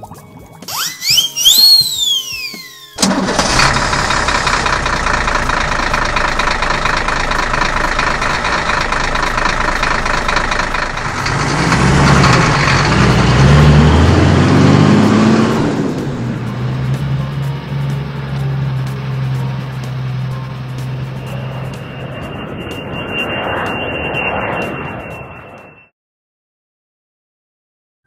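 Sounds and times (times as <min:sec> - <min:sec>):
vehicle engine revving: 0:03.0 - 0:21.8.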